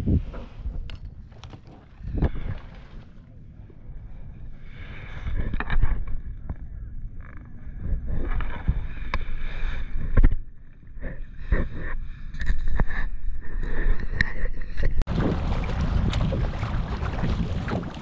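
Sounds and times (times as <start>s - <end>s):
kayak paddle splashing: 1.2s - 3.4s, 15.1s - 18.0s
low microphone rumble: 15.1s - 18.0s.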